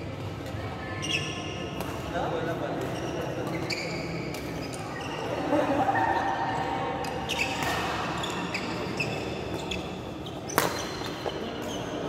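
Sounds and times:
sneakers squeaking on court: 1.0s - 5.4s, 6.8s - 12.0s
racket hitting shuttlecock: 10.5s - 11.4s.

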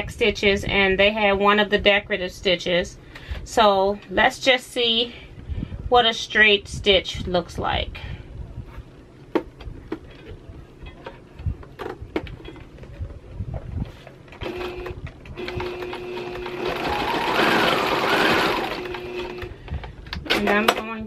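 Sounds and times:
sewing machine motor and needle: 14.4s - 19.5s.

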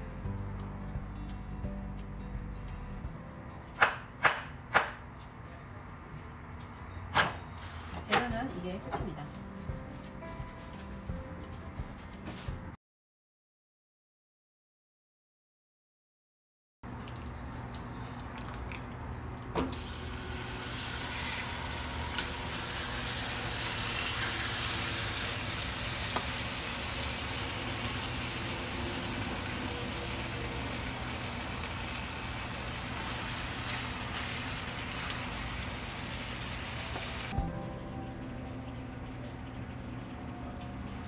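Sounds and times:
chicken sizzling in hot oil: 19.7s - 37.4s
low hum: 37.3s - 41.0s.

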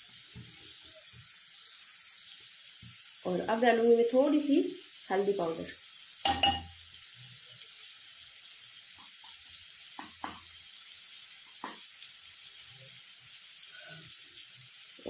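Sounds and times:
onions sizzling in hot oil: 0.0s - 15.0s
spoon knocking against pan: 6.2s - 6.8s, 9.9s - 10.5s, 11.6s - 11.9s.

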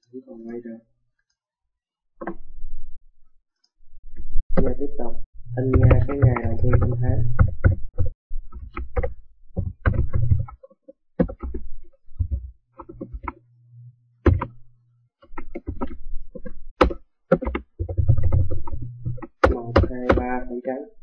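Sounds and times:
computer keyboard typing: 5.6s - 7.8s, 11.2s - 11.6s, 14.3s - 14.6s, 15.3s - 20.5s.

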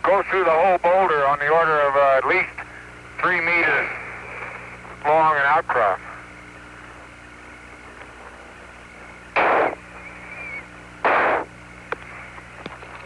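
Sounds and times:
low hum: 0.0s - 13.0s
radio static bursts: 0.1s - 13.0s.

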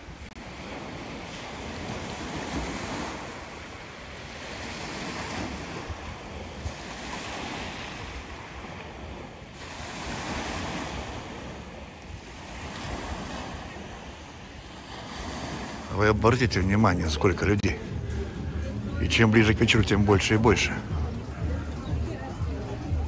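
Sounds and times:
wind buffeting microphone: 0.0s - 16.0s
sea waves washing on shore: 0.0s - 23.0s.

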